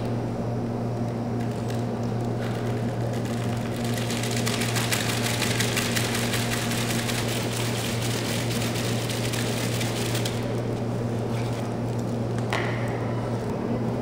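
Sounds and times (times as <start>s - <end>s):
steady low hum: 0.0s - 14.0s
rustling and crackling objects shaken: 1.1s - 12.3s.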